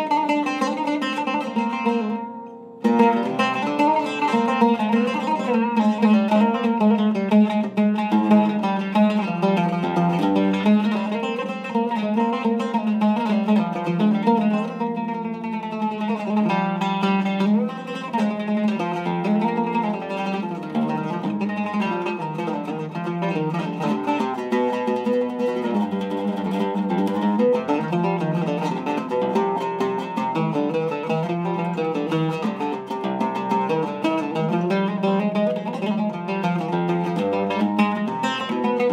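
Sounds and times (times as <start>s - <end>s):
oud played with a plectrum: 0.0s - 38.9s.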